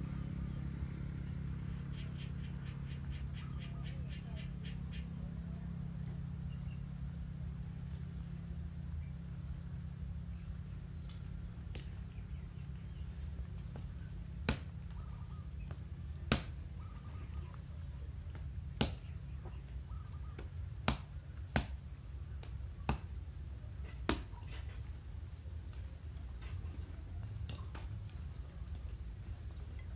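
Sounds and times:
steady low hum: 0.0s - 29.9s
machete chopping bamboo: 14.4s - 14.8s, 16.2s - 16.6s, 18.8s - 19.1s, 20.4s - 23.2s, 23.9s - 24.5s.

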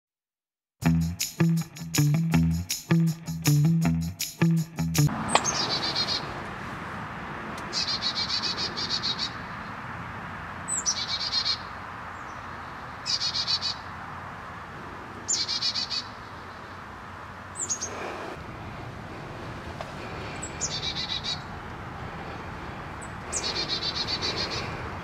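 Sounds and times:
chickadee calling: 5.1s - 6.3s, 7.6s - 9.5s, 10.7s - 12.3s, 13.0s - 13.9s, 15.3s - 16.6s, 17.6s - 18.4s, 20.1s - 21.6s, 22.2s - 24.9s.

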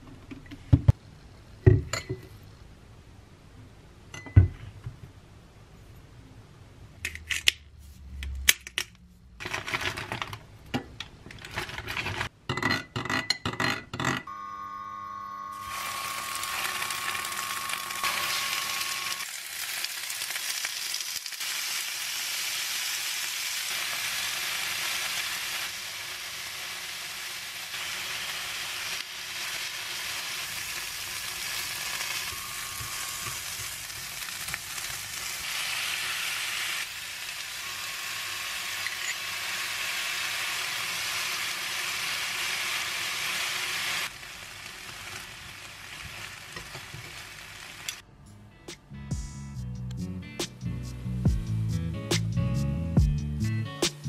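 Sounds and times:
food sizzling in frying pan: 15.5s - 48.0s.

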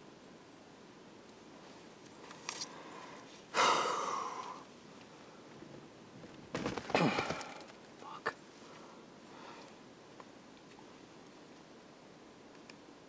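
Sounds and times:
person sighing heavily: 3.5s - 4.6s, 6.9s - 7.7s.

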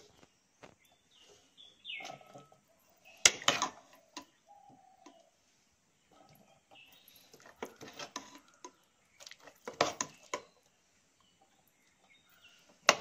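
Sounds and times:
ladle scraping metal pot: 1.3s - 5.2s, 6.0s - 10.6s.

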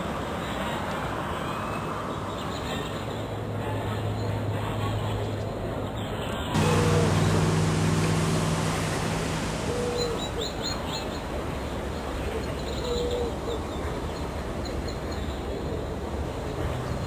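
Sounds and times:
low engine hum: 6.6s - 10.7s.

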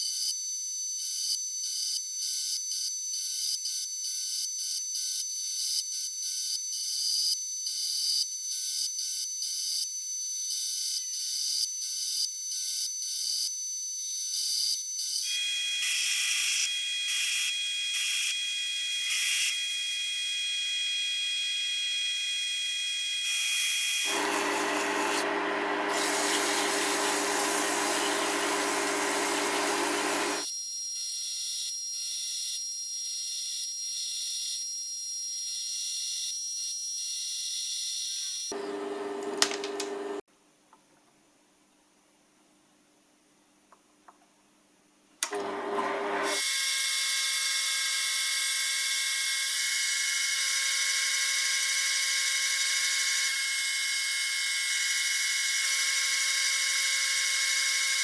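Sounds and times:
lathe whining: 24.1s - 30.4s, 38.6s - 40.2s, 45.2s - 46.4s
tool cutting metal crackle: 24.1s - 30.4s.

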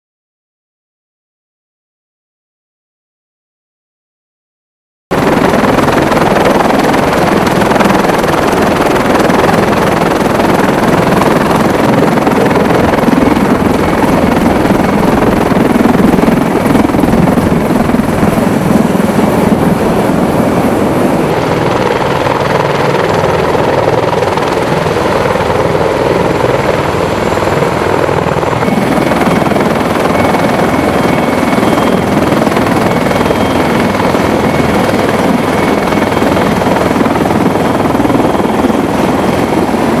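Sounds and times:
helicopter rotor and turbine noise: 5.1s - 40.0s.

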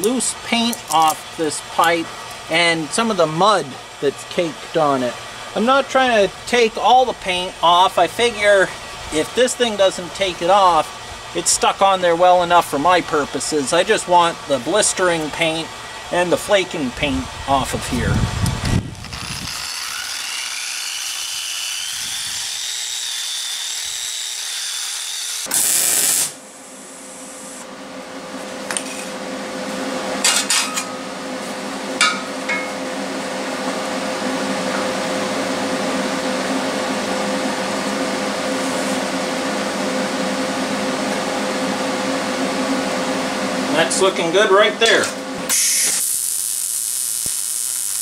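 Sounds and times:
electric tool motor whine: 18.0s - 27.6s, 45.5s - 48.0s.

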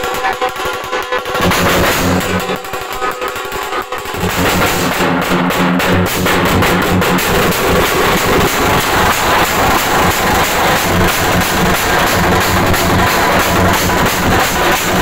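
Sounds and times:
loud dance music with drum beat: 0.0s - 15.0s.

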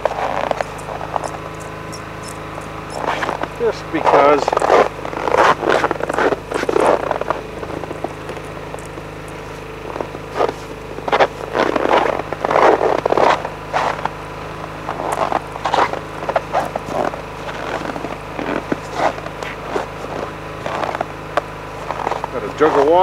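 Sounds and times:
footsteps in snow: 0.0s - 23.0s
low steady hum: 0.0s - 23.0s
fabric cover rustling and scraping: 4.1s - 9.6s.

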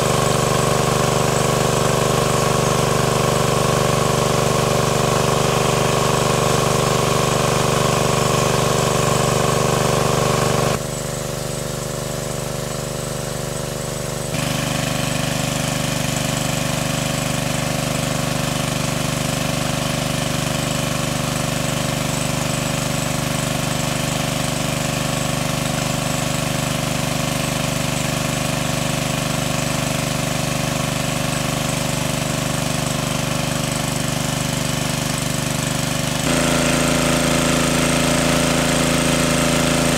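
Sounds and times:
engine-driven water pump running: 0.0s - 39.9s
water gushing from hose: 0.0s - 39.9s.

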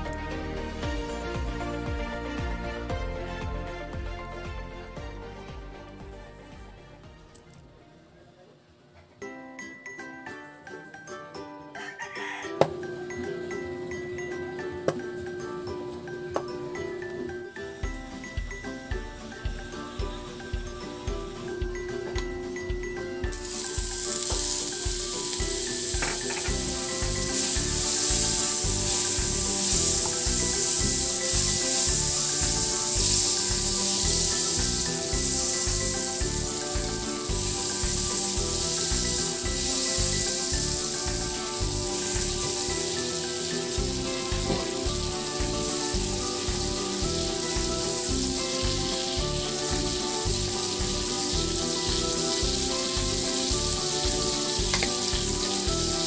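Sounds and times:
background music with a beat: 0.0s - 7.5s, 12.4s - 56.0s
butter sizzling in a wok: 17.6s - 56.0s.

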